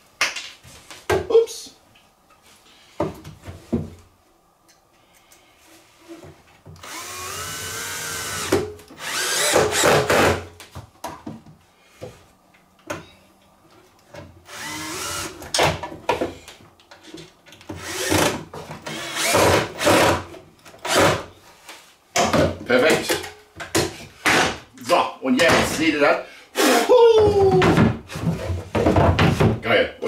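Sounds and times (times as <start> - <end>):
power drill driving screws into wood: 6.8 - 10.5, 14.5 - 15.6, 17.7 - 21.3.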